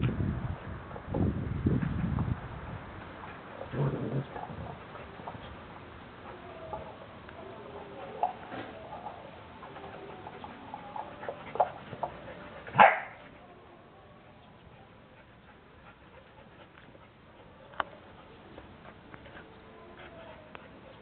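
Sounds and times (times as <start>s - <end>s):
dogs yipping and whining: 6.2s - 13.2s.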